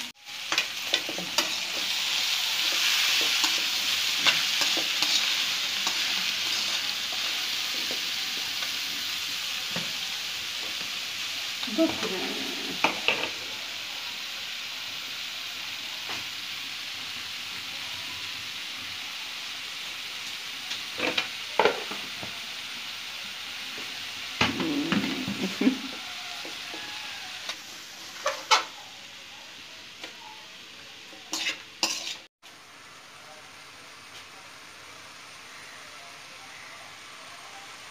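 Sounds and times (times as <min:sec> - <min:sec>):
vegetables sizzling in pan: 0:00.0 - 0:37.9
steel spoon scraping pan: 0:31.3 - 0:32.3.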